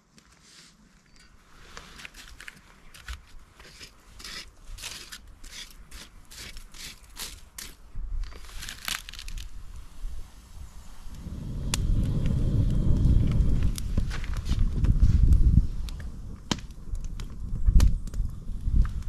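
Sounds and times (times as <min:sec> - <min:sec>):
stick scraping through ash: 0:00.4 - 0:10.2.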